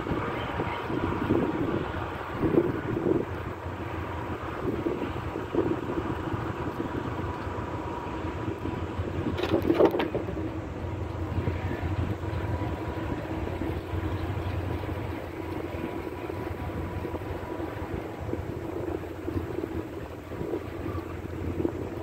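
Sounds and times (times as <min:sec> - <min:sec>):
train wheels rumbling on rail: 0:00.0 - 0:22.0
train wagon clatter: 0:08.8 - 0:19.8.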